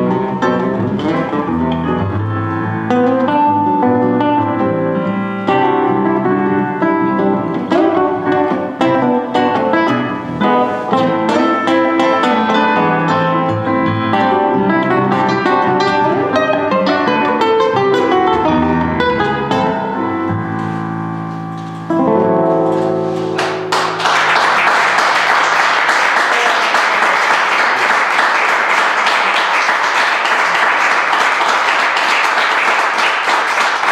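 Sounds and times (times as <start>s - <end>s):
electric keyboard: 0.0s - 24.0s
classical guitar: 0.0s - 24.3s
audience applause: 23.4s - 33.9s.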